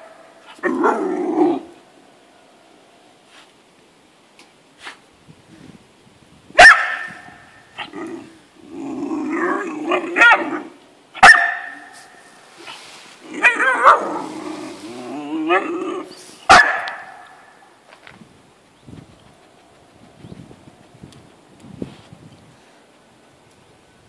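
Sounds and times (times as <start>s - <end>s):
puppy barking: 6.6s - 7.9s, 10.2s - 11.9s, 13.4s - 14.2s, 16.5s - 17.4s.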